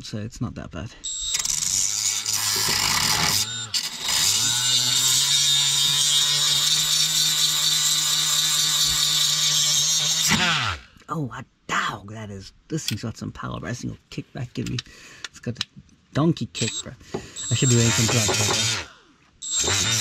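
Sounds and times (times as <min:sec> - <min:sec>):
rotary tool motor whine: 0:01.1 - 0:10.8, 0:16.6 - 0:20.0.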